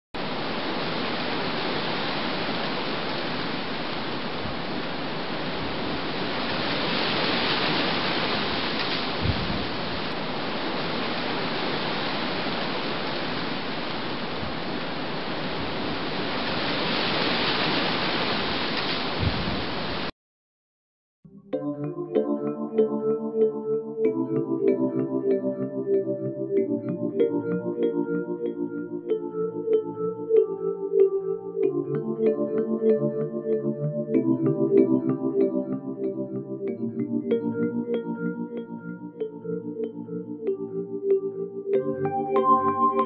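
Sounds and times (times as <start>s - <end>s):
rough sea: 0.2s - 20.1s
storm wind: 0.2s - 20.1s
low thumps: 9.2s - 9.9s, 19.2s - 19.7s.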